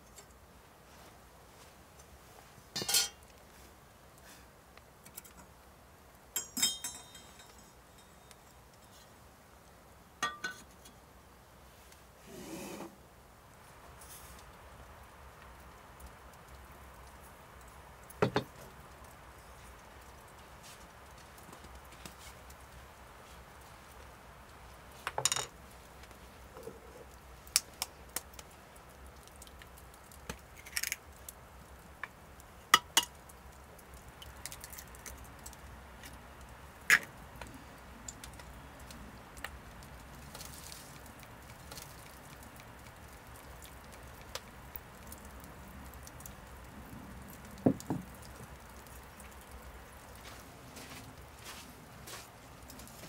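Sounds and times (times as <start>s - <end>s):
faint outdoor background: 0.0s - 53.0s
utensils clinking against bowl: 6.4s - 8.2s.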